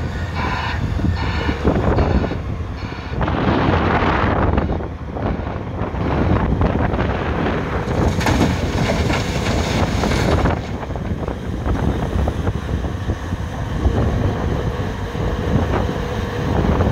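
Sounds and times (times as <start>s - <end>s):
excavator engine and hydraulics: 0.0s - 16.9s
bucket digging into rock pile: 7.9s - 10.8s.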